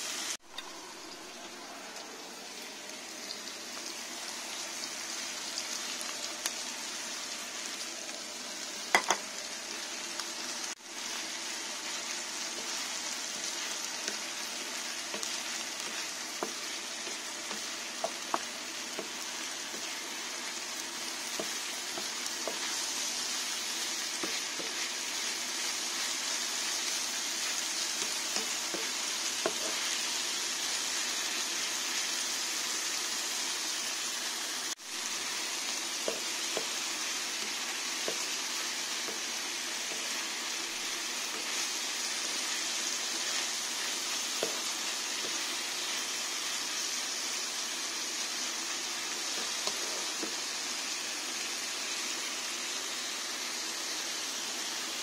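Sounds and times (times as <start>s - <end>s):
food sizzling in a frying pan: 0.0s - 55.0s
wooden spatula scraping a pan: 49.2s - 50.4s.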